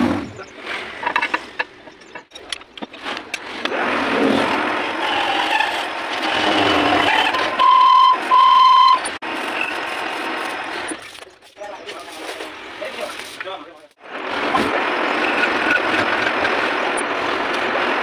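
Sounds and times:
metal parts knocking: 1.0 - 3.7
metal lathe running: 1.0 - 11.1
lathe tool squealing: 4.1 - 11.1.

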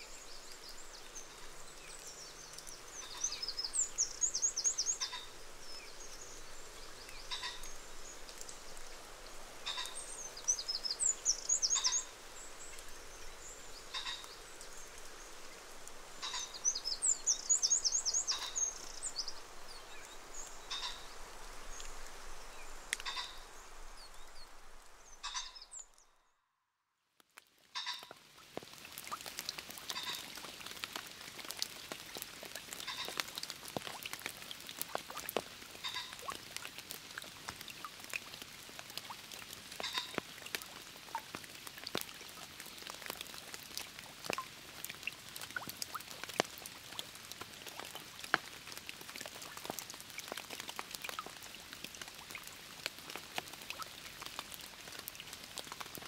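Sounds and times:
kestrels calling: 3.0 - 5.4, 7.2 - 7.7, 9.6 - 12.1, 13.8 - 14.4, 16.2 - 19.2, 20.6 - 21.2, 23.0 - 23.5, 25.1 - 25.8.

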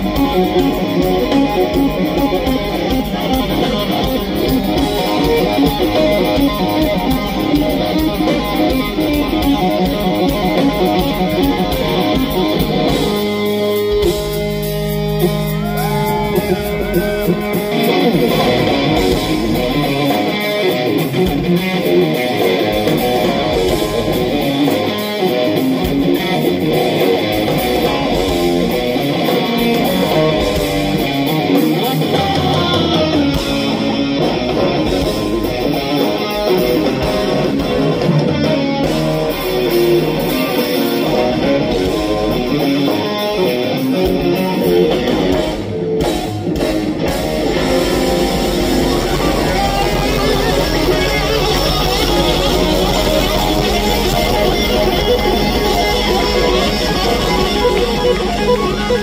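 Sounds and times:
bass guitar: 0.0 - 59.0
drums: 0.0 - 59.0
electric guitar lead: 0.0 - 59.0.

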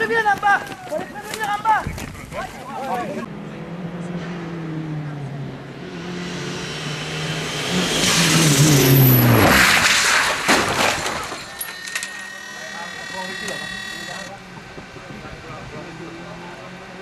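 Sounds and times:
rally car engine at high revs: 3.2 - 10.7, 12.6 - 17.0.

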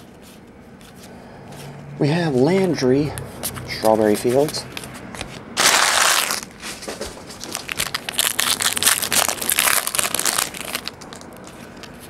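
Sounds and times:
foil wrappers crinkling and tearing: 5.6 - 12.0.

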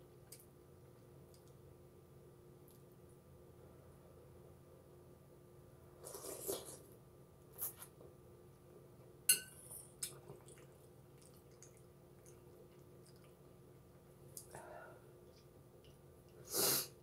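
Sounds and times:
spoon clinking against bowl: 9.3 - 9.8
faint chewing: 9.6 - 16.5.

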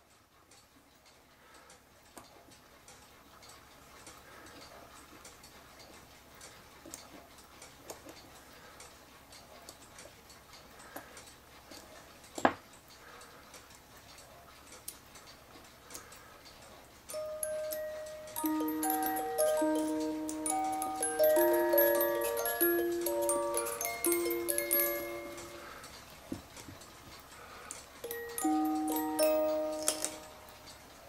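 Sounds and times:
music box metallic clicks: 17.1 - 25.7, 27.8 - 30.9.

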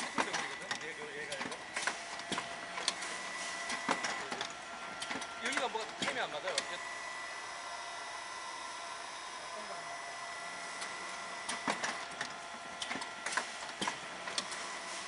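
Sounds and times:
mechanical clicks and clacks: 0.0 - 6.8, 10.8 - 14.7
machine whirring and hissing: 0.0 - 15.0.

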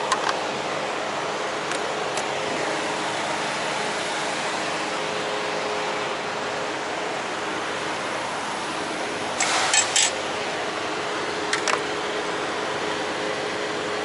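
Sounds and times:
truck engine humming: 0.0 - 13.4
air hiss bursts: 9.4 - 10.0.

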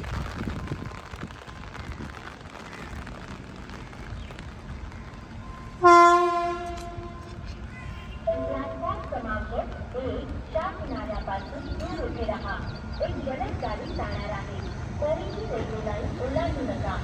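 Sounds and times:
locomotive horn blast: 5.8 - 7.4, 8.2 - 9.1.

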